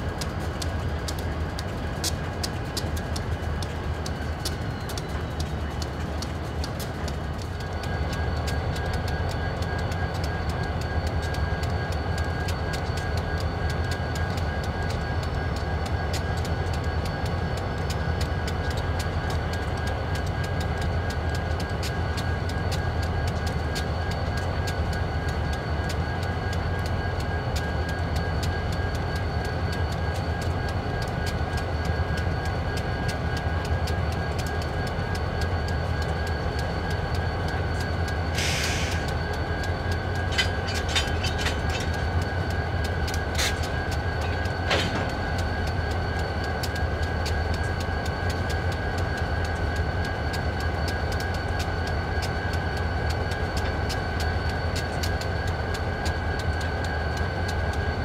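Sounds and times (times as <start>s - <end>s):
diesel locomotives rumbling: 0.0s - 58.0s
thin steady whine: 0.0s - 58.0s.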